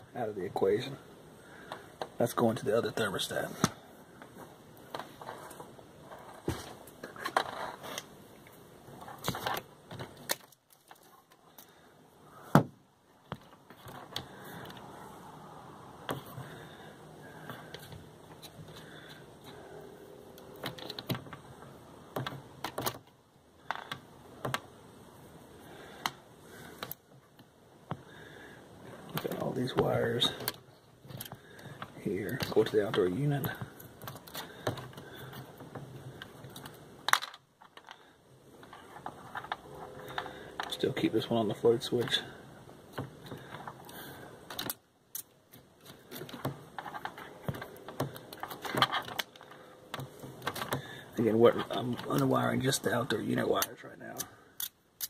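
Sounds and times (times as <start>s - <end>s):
small clicks and rattles of wires: 3.6s - 11.9s, 13.1s - 15.0s, 16.0s - 19.7s, 20.3s - 24.8s, 25.7s - 40.9s, 42.0s - 55.0s
small sharp clicks of wire nuts: 43.2s - 46.4s, 53.6s - 55.0s.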